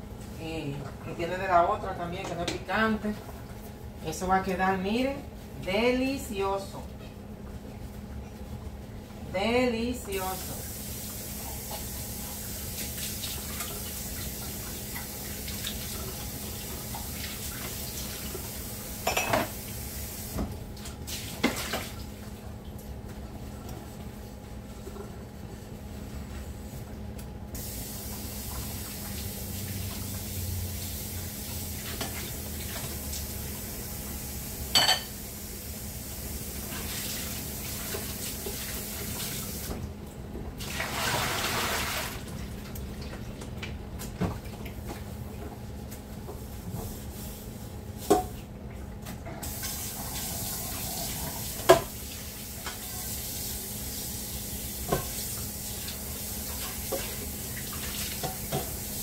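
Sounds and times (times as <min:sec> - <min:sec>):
tap water running: 0:10.1 - 0:24.1, 0:27.5 - 0:47.1, 0:48.0 - 0:59.0
dishes clinking: 0:19.0 - 0:19.6, 0:34.7 - 0:35.1
gush of water: 0:27.6 - 0:34.2, 0:40.6 - 0:42.5, 0:49.4 - 0:59.0.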